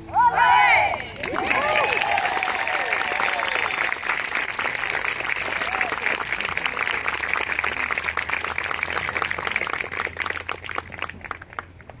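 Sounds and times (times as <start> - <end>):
audience applause: 1.2 - 12.0.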